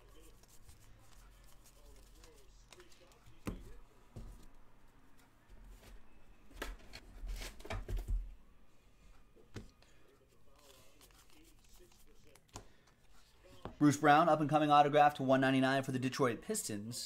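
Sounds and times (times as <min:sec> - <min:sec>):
cards tapping and rustling: 0:00.2 - 0:04.5, 0:10.6 - 0:13.8.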